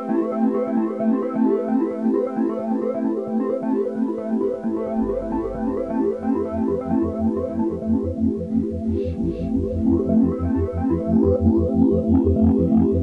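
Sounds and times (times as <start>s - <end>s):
synthesizer melody: 4.4s - 13.0s
low bass line: 4.5s - 13.0s.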